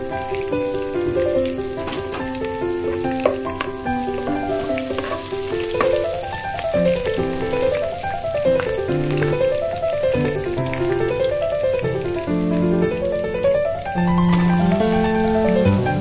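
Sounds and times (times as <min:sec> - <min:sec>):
background music melody: 0:00.0 - 0:16.0
food sizzling in hot oil: 0:00.0 - 0:16.0
spoon stirring in a pot: 0:04.9 - 0:06.0.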